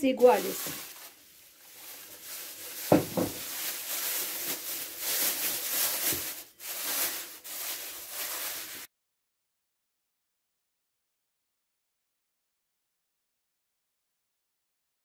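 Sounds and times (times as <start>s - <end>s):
cling film crinkling: 0.2s - 8.9s
dough thumping on countertop: 2.9s - 3.4s.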